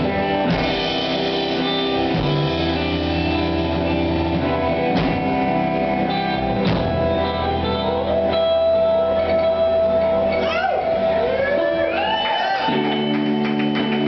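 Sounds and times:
drum kit and cymbal hits: 0:00.0 - 0:05.8
electric guitar chords: 0:00.0 - 0:14.0.

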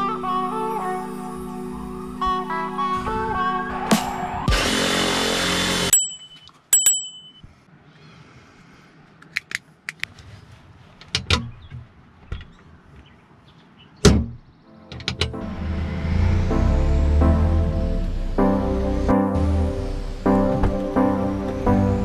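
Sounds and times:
short metallic pings: 0:05.9 - 0:07.5.

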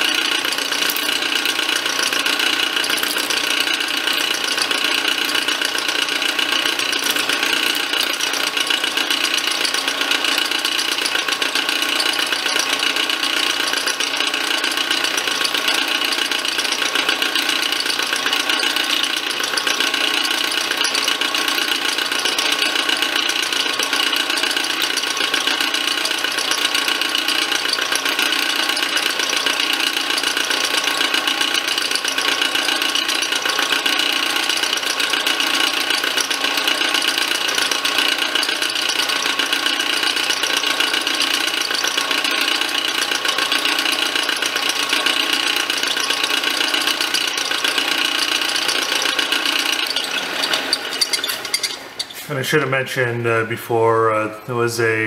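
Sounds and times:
constant ringing tones: 0:00.0 - 0:52.3
milling machine cutting metal: 0:00.0 - 0:52.7.

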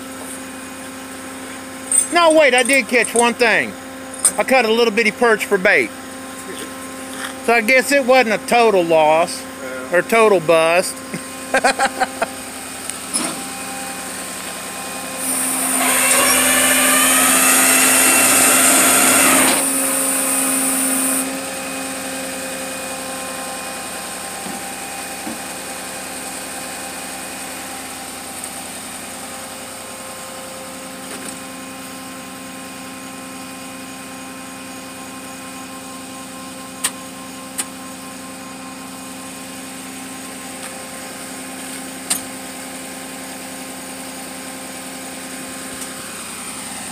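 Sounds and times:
hydraulics humming: 0:00.1 - 0:21.2
hydraulic hiss with rising whine: 0:14.9 - 0:21.3.

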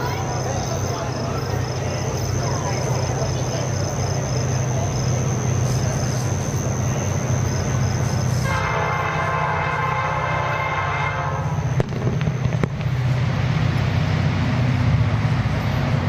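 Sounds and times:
train rumble: 0:00.0 - 0:16.0
locomotive air horn blast: 0:08.4 - 0:11.7.

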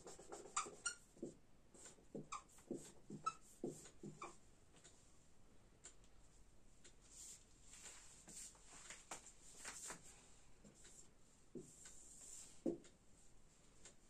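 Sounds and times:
marker pen scratching whiteboard: 0:00.0 - 0:04.4, 0:11.6 - 0:12.8.

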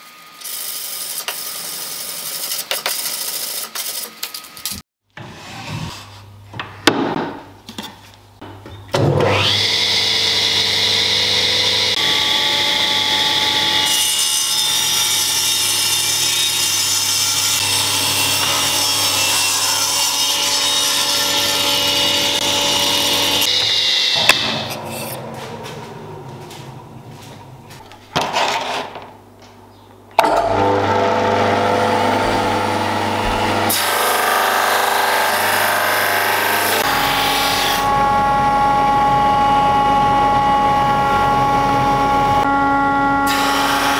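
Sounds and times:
table saw cutting wood: 0:09.0 - 0:27.2, 0:30.2 - 0:43.9.

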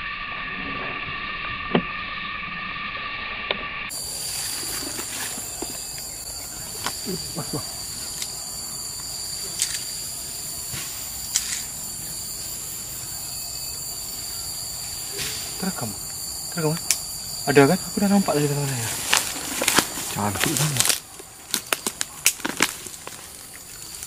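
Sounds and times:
high-pitched insect chorus: 0:00.0 - 0:24.0.

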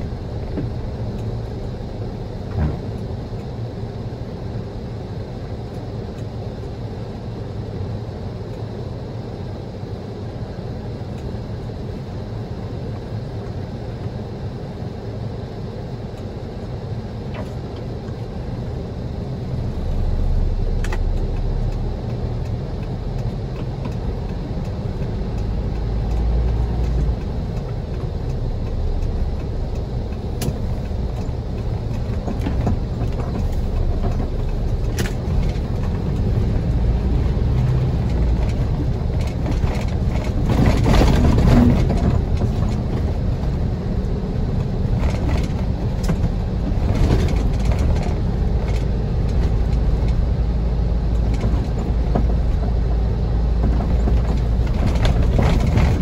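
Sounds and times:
car engine and tyres rumbling: 0:00.0 - 0:56.0.

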